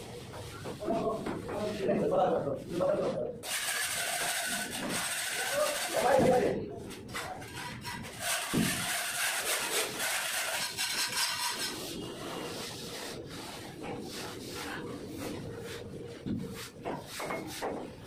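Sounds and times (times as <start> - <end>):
trowels scraping wet plaster: 3.4 - 6.4, 7.1 - 15.9.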